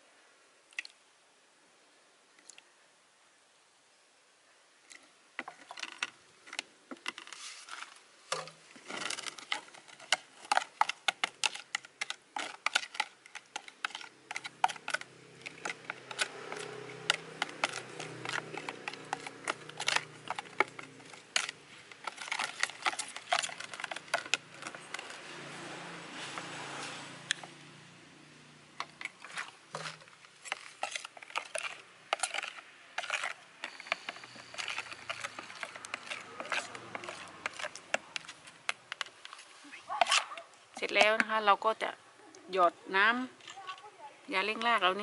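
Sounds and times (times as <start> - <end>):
metal spoon scraping plastic bowl: 5.4 - 27.5, 28.8 - 41.5.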